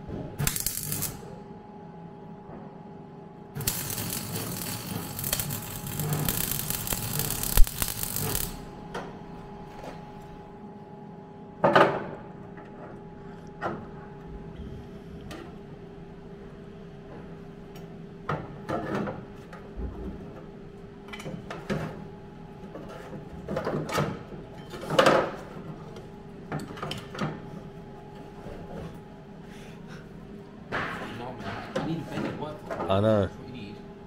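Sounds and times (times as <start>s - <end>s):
steady hum: 0.0s - 2.4s, 3.0s - 11.6s.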